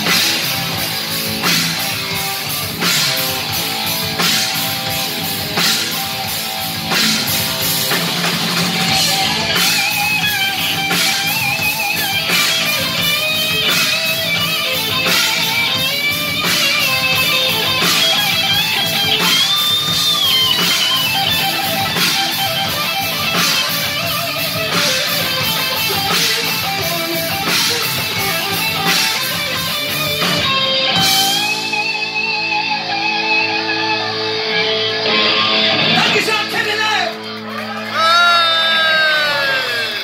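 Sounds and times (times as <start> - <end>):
drums with crashing cymbals: 0.0 - 32.2
distorted electric guitars: 0.0 - 40.0.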